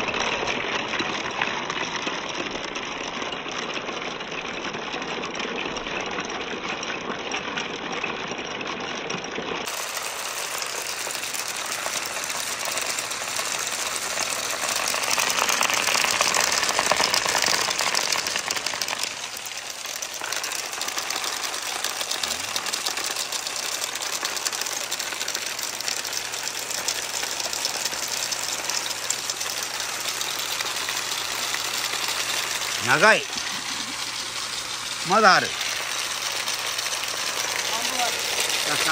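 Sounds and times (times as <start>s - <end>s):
marbles rolling on wooden run: 0.0s - 38.9s
water running: 9.7s - 38.9s.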